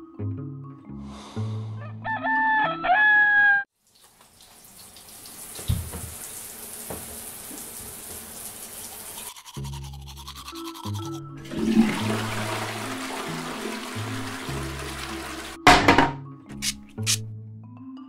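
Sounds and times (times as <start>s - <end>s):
rooster crowing: 1.8s - 3.7s
water running: 3.7s - 17.2s.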